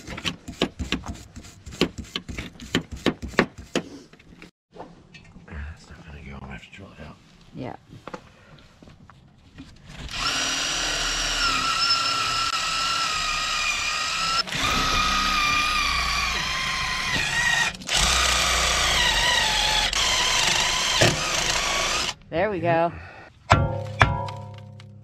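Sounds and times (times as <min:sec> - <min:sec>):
cordless drill whining: 0:10.0 - 0:22.2.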